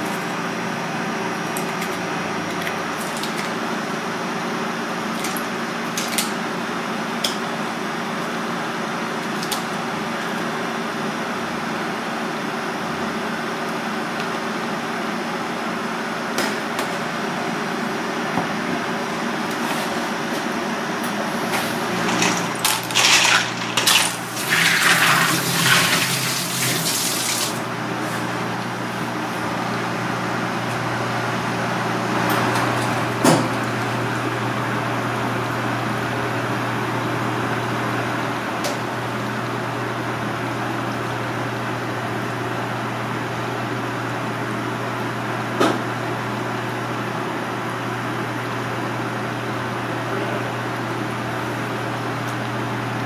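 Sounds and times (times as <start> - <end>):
water and ice sloshing in bowl: 22.0 - 27.6.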